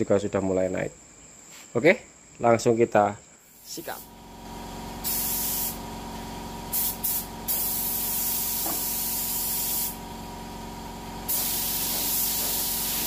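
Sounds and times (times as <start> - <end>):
spray gun hissing: 3.5 - 4.1, 5.0 - 5.9, 6.7 - 10.0, 11.2 - 13.0.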